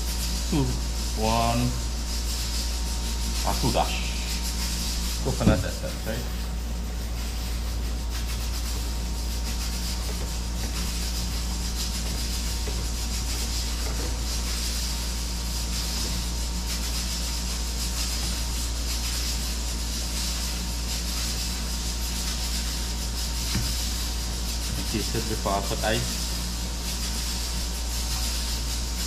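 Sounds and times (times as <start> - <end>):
even hiss: 0.0 - 8.7
steady low hum: 0.0 - 29.0.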